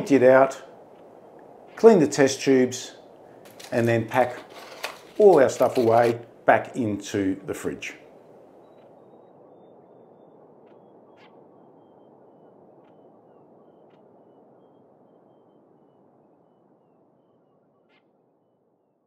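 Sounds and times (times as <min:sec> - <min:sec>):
scattered clicks: 0:03.4 - 0:06.2.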